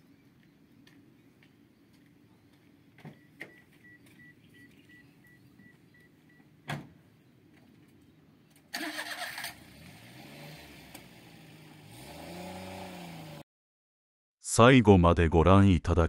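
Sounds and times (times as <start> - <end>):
faint repeating beep: 3.1 - 6.4
truck engine running and revving: 9.4 - 13.4.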